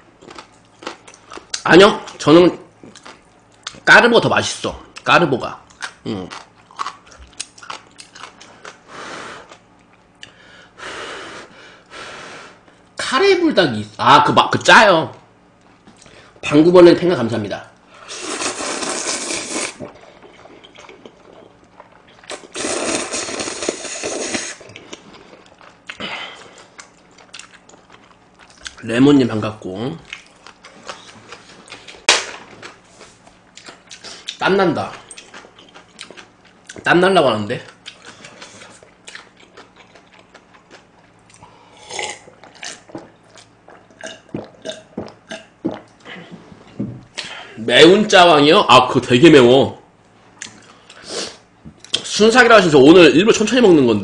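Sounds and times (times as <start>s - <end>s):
chewing: 5.6s - 8.8s, 18.5s - 28.8s, 30.0s - 36.9s, 37.6s - 46.2s
person slurping noodles: 18.0s - 21.5s, 22.3s - 24.7s
person sipping and gulping: 18.0s - 27.5s, 41.3s - 46.1s.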